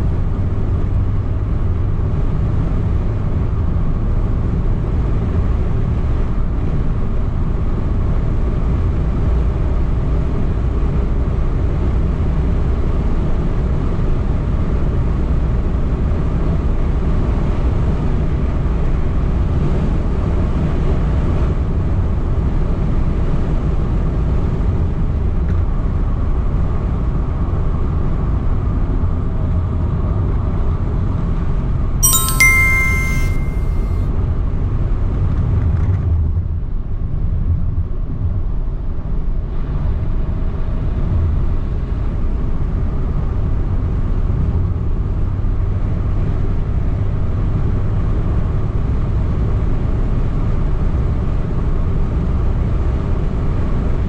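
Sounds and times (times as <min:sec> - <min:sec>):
bright chime: 0:32.0 - 0:34.0.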